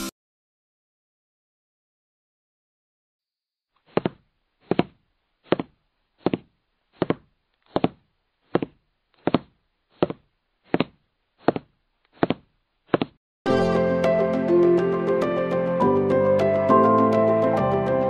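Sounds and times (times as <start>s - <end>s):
footsteps on paved path: 3.9s - 13.2s.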